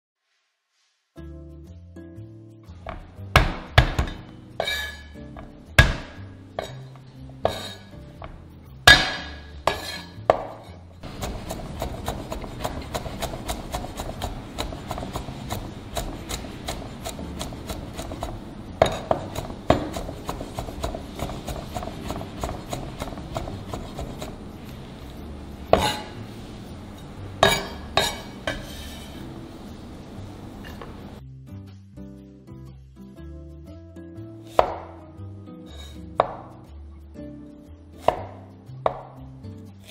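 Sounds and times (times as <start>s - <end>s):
cleaver chopping on wooden board: 5.8s - 6.7s, 8.9s - 24.4s, 25.7s - 26.1s, 34.6s - 34.9s, 36.2s - 36.4s, 38.1s - 39.1s.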